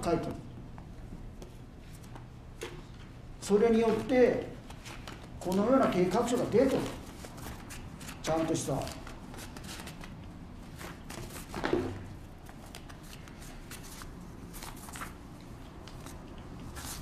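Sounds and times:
paper rustling: 4.7 - 17.0.

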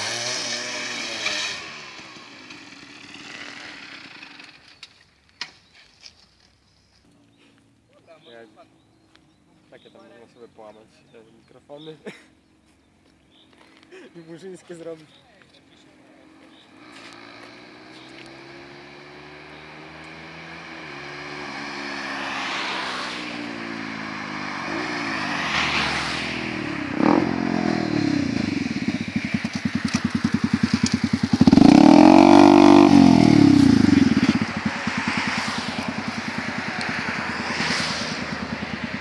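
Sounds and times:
motorcycle engine revving and idling: 0.0 - 4.8, 16.3 - 39.0.

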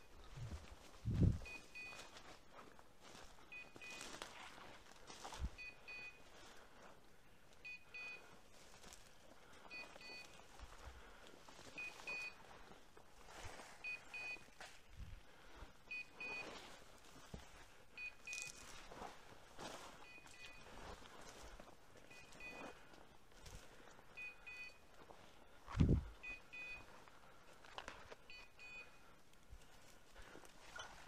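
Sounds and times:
footsteps crunching dry bracken: 0.1 - 5.6, 8.3 - 15.8, 16.4 - 24.2, 26.8 - 28.3
faint double beeps: 1.3 - 2.2, 3.5 - 4.2, 5.4 - 6.3, 7.6 - 8.3, 9.7 - 10.5, 11.7 - 12.4, 13.8 - 14.6, 15.9 - 16.6, 18.0 - 18.7, 20.0 - 20.8, 22.0 - 22.8, 24.2 - 26.9, 28.2 - 29.0, 30.7 - 31.0.

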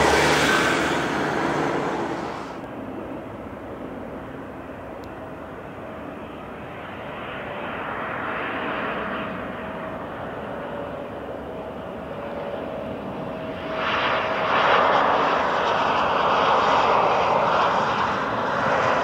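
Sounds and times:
jet airliner flying away: 0.0 - 19.0
regional jet engine on approach: 0.0 - 19.0.

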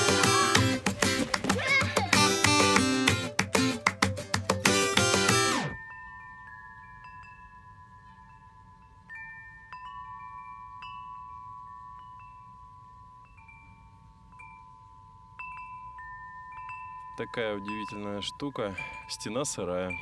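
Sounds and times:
metal wind chimes ringing: 5.8 - 20.0.

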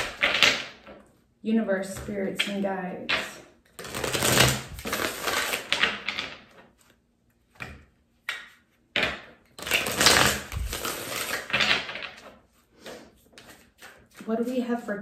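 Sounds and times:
cards riffle-shuffled on wood: 0.0 - 1.0, 1.9 - 14.9.

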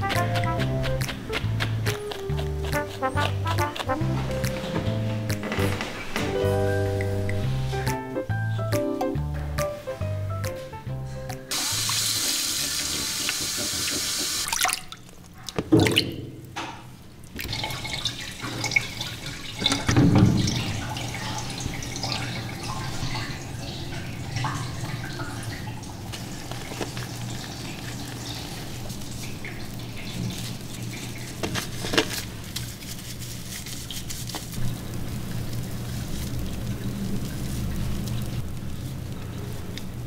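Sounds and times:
water running in a tub: 11.5 - 16.1, 17.2 - 40.0
wet rubbing of fur: 25.4 - 40.0.

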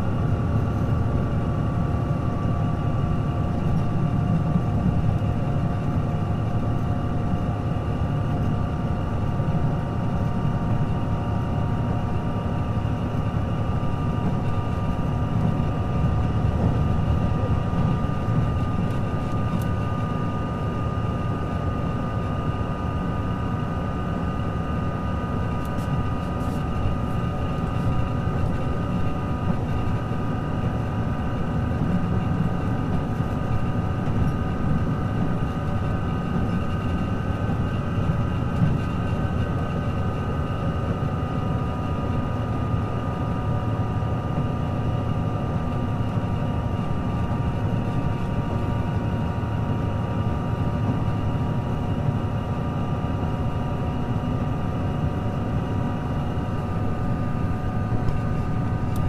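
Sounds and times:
railcar low rumble: 0.0 - 59.0.

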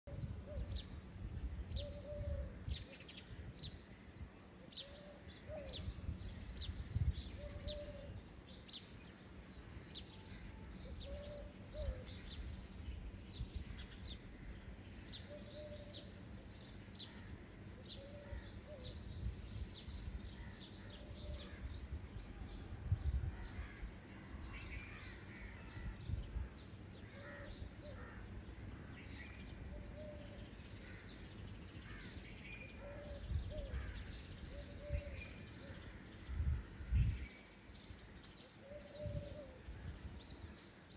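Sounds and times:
low microphone rumbles: 0.1 - 8.8, 16.9 - 32.2, 32.8 - 40.6
dove cooing: 1.8 - 3.0, 7.4 - 8.2, 10.9 - 12.1, 15.3 - 16.0, 29.7 - 30.4, 32.8 - 33.9, 34.5 - 35.8, 38.6 - 39.6
birds chirping: 23.4 - 40.9.

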